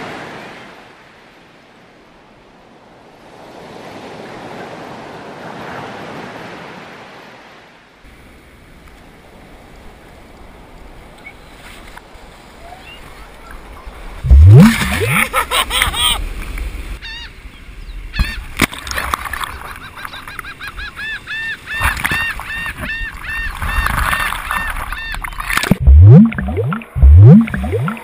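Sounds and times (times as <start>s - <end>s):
wave splashing over camera: 14.2s - 15.3s, 23.5s - 28.0s
squeaky rising and falling tones: 14.3s - 15.2s, 25.8s - 28.0s
muffled underwater sloshing thumps: 25.6s - 28.0s.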